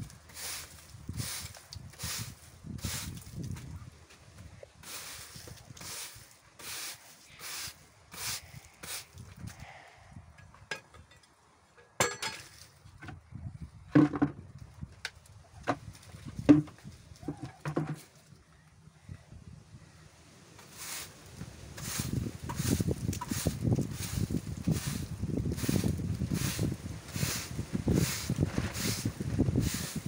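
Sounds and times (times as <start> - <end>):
broom sweeping a floor: 0.1 - 3.4, 4.8 - 9.2, 20.6 - 30.0.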